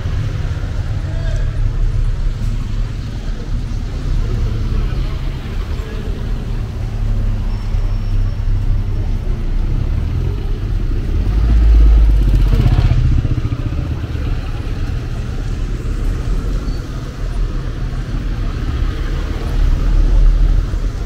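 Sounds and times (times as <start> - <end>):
low traffic rumble: 0.0 - 21.0
vehicle passing close by: 9.6 - 15.8.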